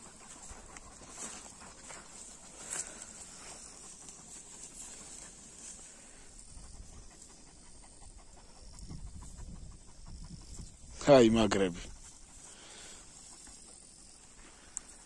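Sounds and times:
dog panting faintly: 0:00.0 - 0:15.0.

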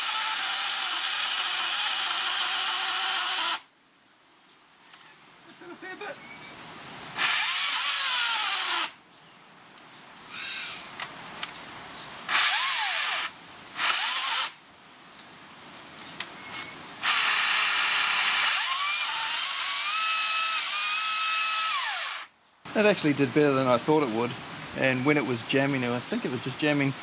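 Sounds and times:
battery chainsaw cutting wood: 0:00.0 - 0:03.7, 0:07.2 - 0:09.0, 0:12.3 - 0:14.6, 0:17.0 - 0:22.3.

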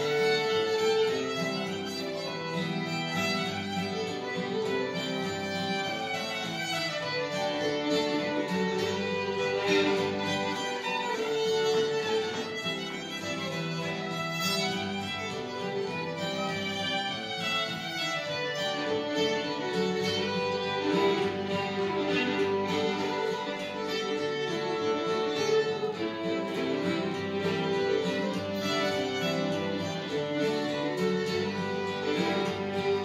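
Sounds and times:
acoustic guitar strumming: 0:00.0 - 0:33.0
fiddle melody: 0:00.0 - 0:33.0.

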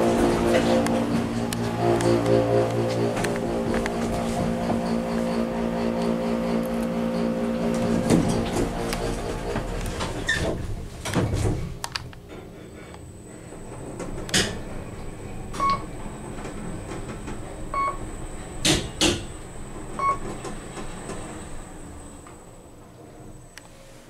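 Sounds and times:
short electronic beeps: 0:20.0 - 0:20.2.

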